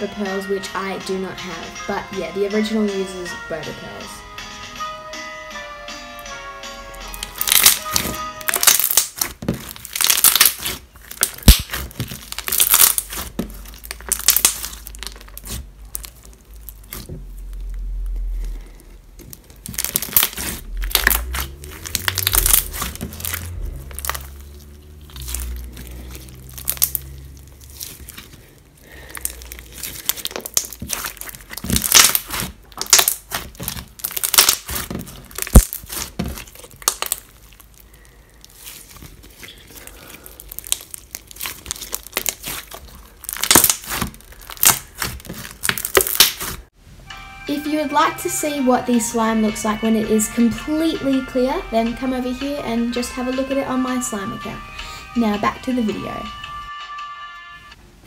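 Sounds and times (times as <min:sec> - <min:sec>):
slime crackling under hands: 0:07.2 - 0:46.8
low rumble: 0:17.2 - 0:29.8.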